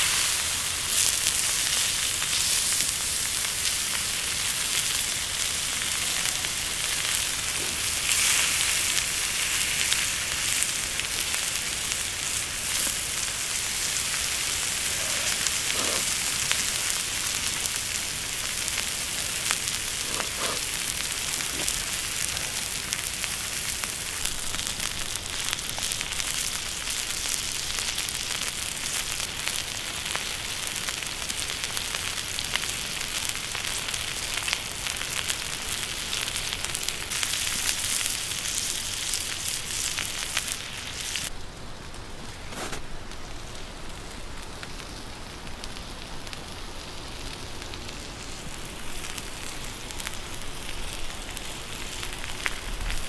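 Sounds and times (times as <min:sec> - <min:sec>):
meat sizzling on hot rock: 0:00.0 - 0:53.0
dull crackle: 0:11.6 - 0:27.2, 0:42.3 - 0:45.0.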